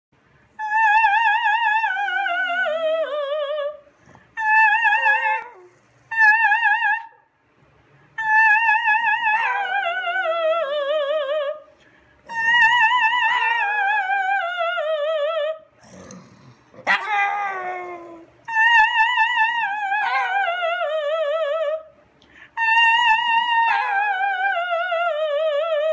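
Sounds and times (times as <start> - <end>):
woman singing opera: 0.6 - 3.8, 4.4 - 7.1, 8.2 - 11.7, 12.3 - 15.6, 16.9 - 21.9, 22.6 - 25.9
dog howling: 4.4 - 7.2, 8.2 - 11.6, 12.3 - 15.6, 16.8 - 21.8, 22.6 - 25.9.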